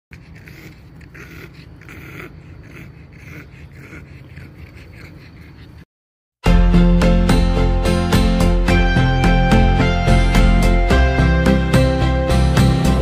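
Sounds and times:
dog panting: 0.1s - 5.9s
loud music: 6.4s - 13.0s.

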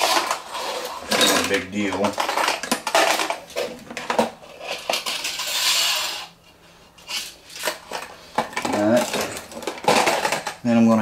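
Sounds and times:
metal scraping: 4.4s - 10.4s.

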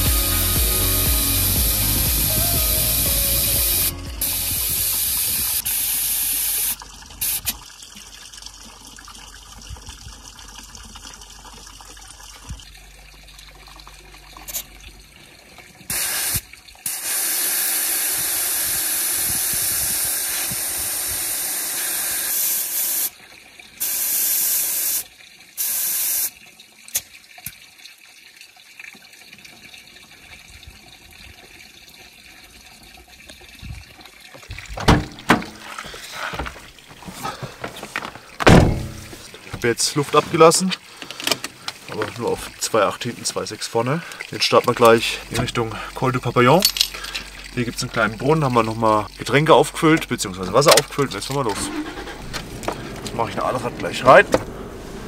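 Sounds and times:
air hissing from tyre valve: 0.0s - 7.4s, 15.9s - 23.1s, 23.8s - 25.0s.

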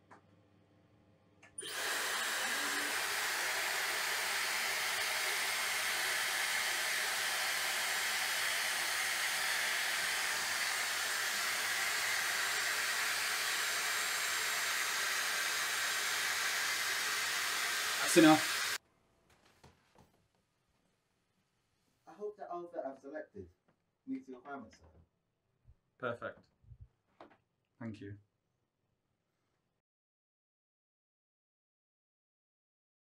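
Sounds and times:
hair dryer blowing: 1.6s - 18.8s.

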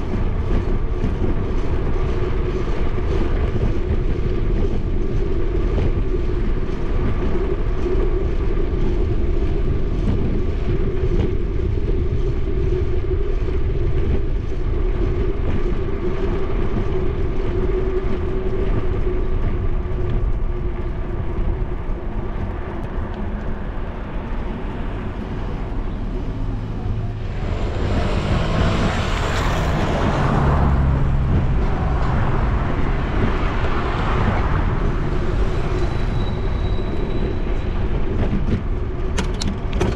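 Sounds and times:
bicycle tyres rolling: 0.0s - 39.9s
wind on microphone: 0.0s - 39.9s
motor vehicle passing close: 24.8s - 36.8s.

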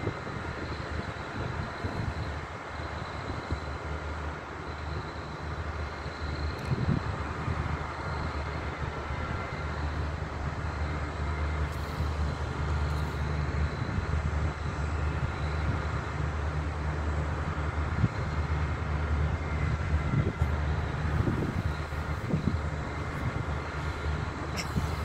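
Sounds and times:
diesel railcar engine drone: 0.0s - 25.0s.

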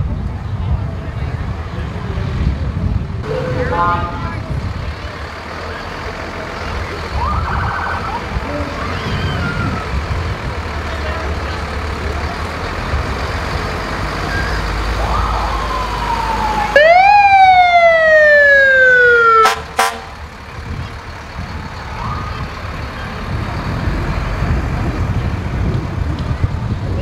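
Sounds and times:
low engine rumble: 0.0s - 27.0s
siren blips: 3.2s - 4.5s
fire truck siren wailing: 3.2s - 5.9s, 6.5s - 10.3s, 14.2s - 23.4s.

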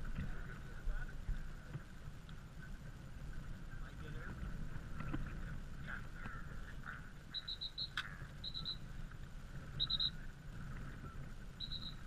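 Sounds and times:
wind rumble on microphone: 0.0s - 12.0s
faint bird chirps: 7.3s - 8.9s, 9.7s - 10.3s, 10.9s - 12.0s.

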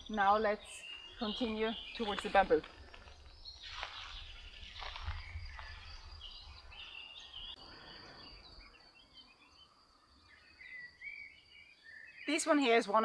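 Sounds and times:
small birds chirping: 0.0s - 13.0s
rustles on microphone: 1.9s - 6.9s.

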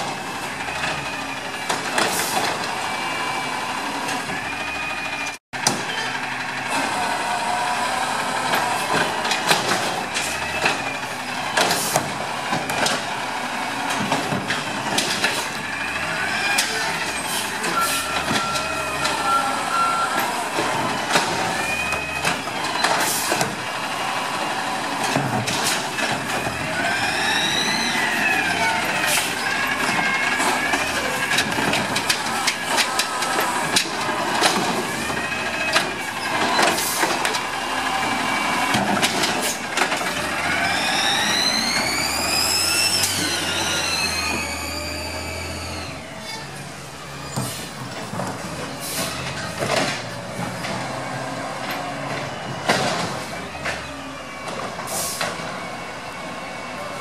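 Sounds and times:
clanks and knocks of cart: 0.0s - 2.8s, 5.2s - 6.9s, 8.4s - 45.3s, 46.2s - 55.7s
truck engine and hydraulics whining: 0.0s - 57.0s
air brake hiss: 54.9s - 55.3s.

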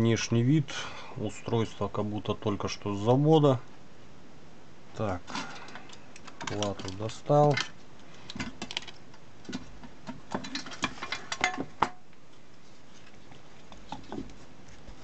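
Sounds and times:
circuit board and wires clicking: 5.7s - 9.6s.

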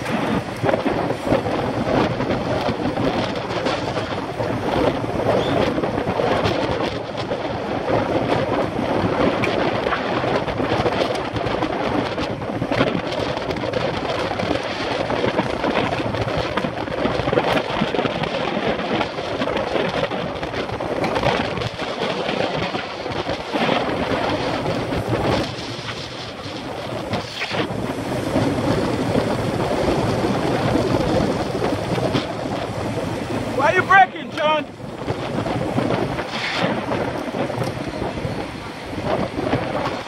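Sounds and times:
wind buffeting microphone: 0.0s - 40.0s.

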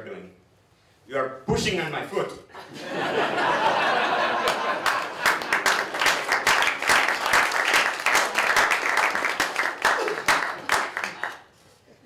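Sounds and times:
audience applauding: 3.9s - 11.6s.

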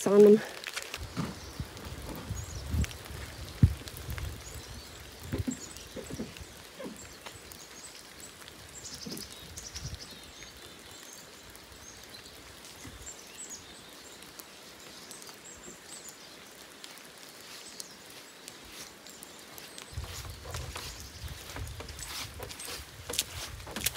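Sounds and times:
rain falling in forest: 0.0s - 23.9s.

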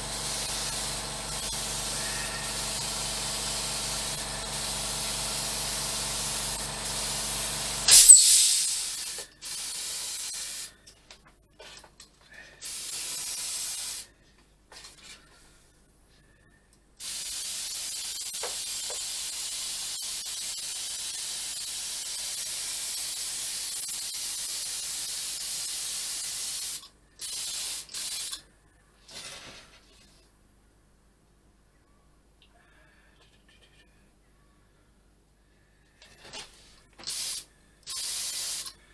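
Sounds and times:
spray gun air hiss: 0.0s - 10.8s, 12.6s - 14.1s, 17.0s - 28.4s, 37.0s - 38.8s.

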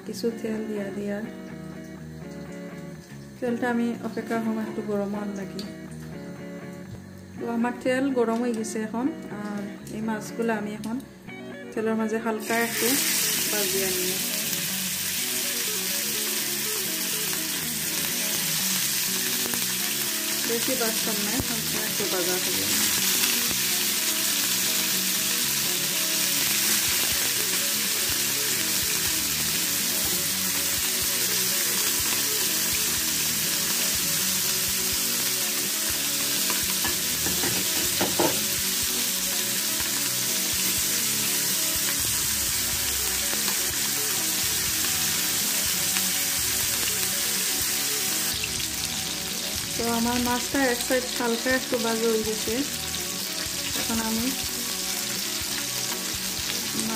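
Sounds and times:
fish sizzling in oil: 12.4s - 56.9s.

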